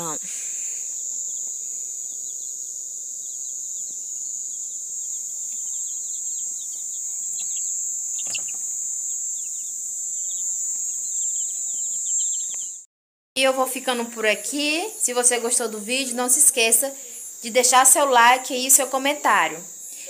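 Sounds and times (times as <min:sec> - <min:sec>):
chicks peeping: 0:00.0 - 0:12.8
night insects chorus: 0:00.0 - 0:20.0
brief knock: 0:08.2 - 0:08.6.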